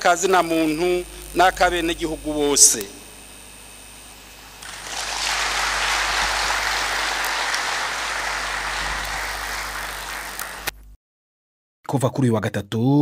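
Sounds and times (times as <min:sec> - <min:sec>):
crowd applauding: 0:04.6 - 0:10.8.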